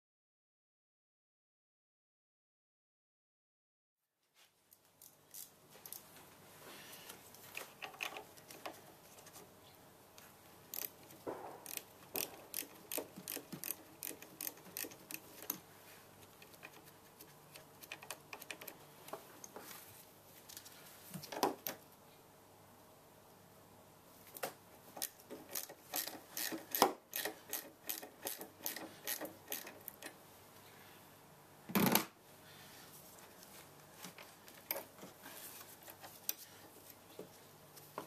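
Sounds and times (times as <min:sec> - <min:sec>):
ratchet and metal tools clicking: 0:10.7 - 0:11.0, 0:11.6 - 0:15.6, 0:25.0 - 0:30.1.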